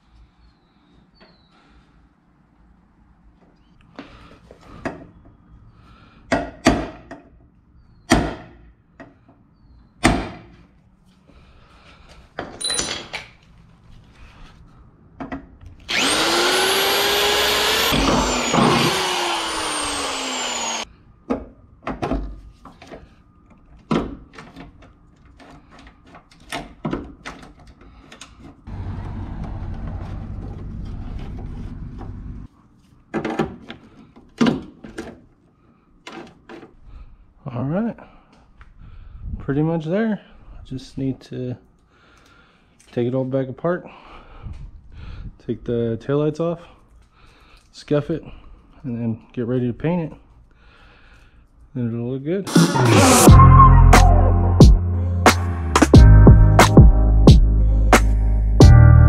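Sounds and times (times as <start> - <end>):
electric drill boring: 15.8 - 20.9.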